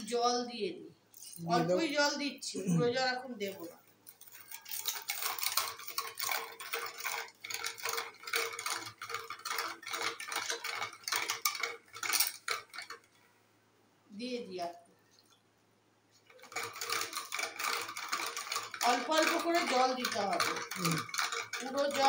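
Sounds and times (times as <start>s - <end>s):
metal stick clattering in mug: 16.4s - 22.0s.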